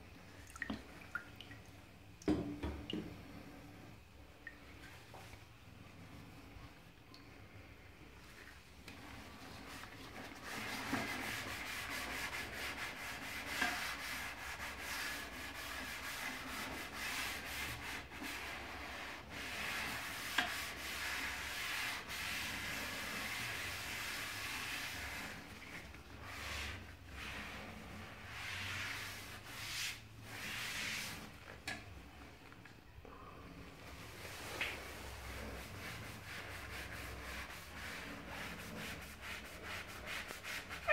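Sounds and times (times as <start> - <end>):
gloved hand scrubbing toilet seat: 8.3 - 31.9, 33.7 - 40.9.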